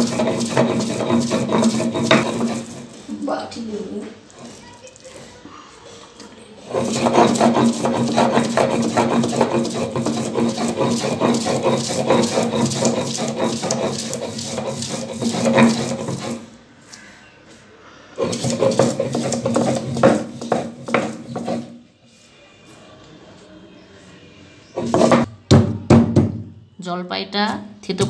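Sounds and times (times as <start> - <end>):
stone roller grinding on stone: 0.0 - 3.1, 6.6 - 16.5, 18.2 - 21.8, 24.8 - 25.3.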